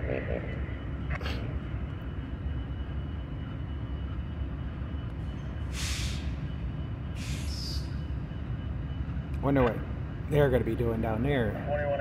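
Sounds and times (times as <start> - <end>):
diesel locomotives idling: 0.0 - 12.0
air release hiss: 5.7 - 6.3, 7.2 - 7.8.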